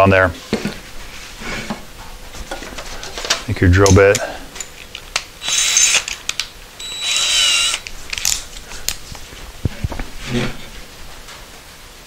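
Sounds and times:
sharp clicks of drill chuck: 4.9 - 8.4
cordless drill spinning: 5.4 - 6.2, 6.8 - 8.4.

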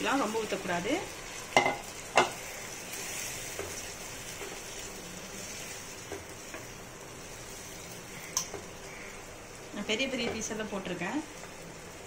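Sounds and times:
spatula stirring: 0.0 - 9.0
curry sizzling in a pan: 0.0 - 12.0
spatula tapping on pan: 1.6 - 2.4.

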